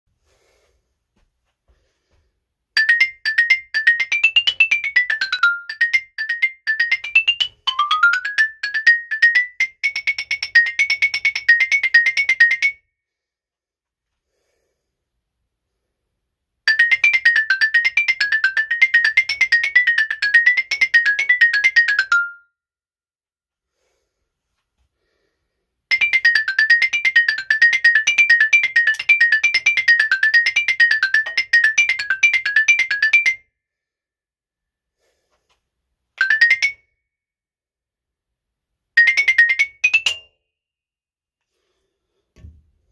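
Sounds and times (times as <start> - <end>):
marimba fast runs: 2.8 - 12.7, 16.7 - 22.4, 25.9 - 33.3.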